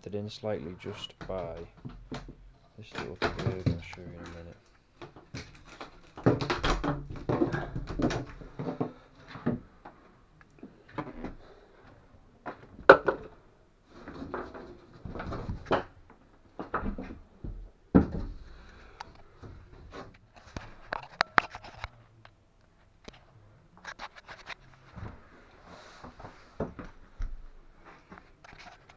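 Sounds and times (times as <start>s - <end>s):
tools and materials handled: 1.0s - 9.6s.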